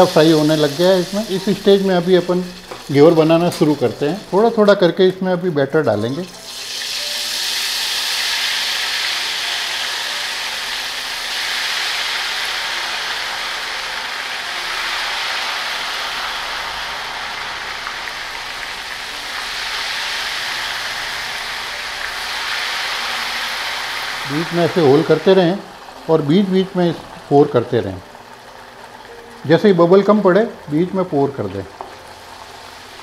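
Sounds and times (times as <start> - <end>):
batter sizzling in hot ghee: 0.0 - 33.0.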